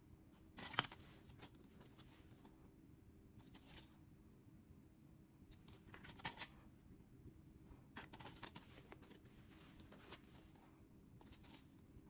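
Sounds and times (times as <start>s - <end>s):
low room hum: 0.0s - 12.0s
cardboard sleeves rustling: 8.0s - 11.8s.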